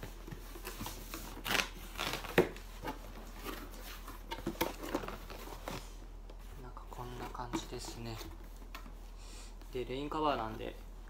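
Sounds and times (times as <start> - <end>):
packing tape pulled off: 1.3 - 2.5.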